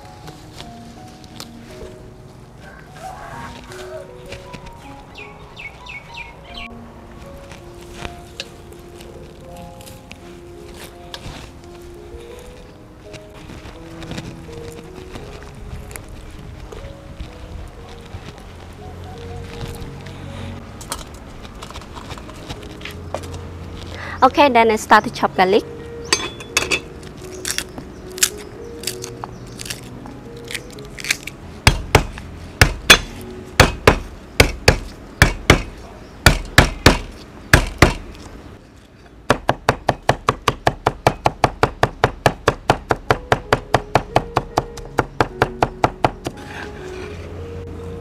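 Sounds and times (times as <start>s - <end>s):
cleaver chopping on wooden board: 31.7s - 38.1s, 39.3s - 46.4s.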